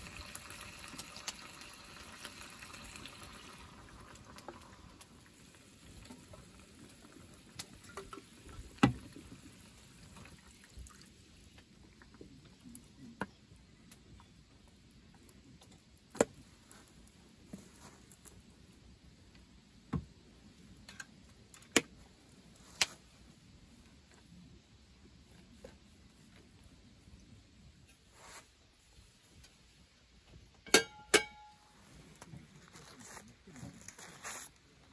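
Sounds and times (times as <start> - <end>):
soup simmering in a pan: 0.0 - 13.0
faint steady background: 0.0 - 34.9.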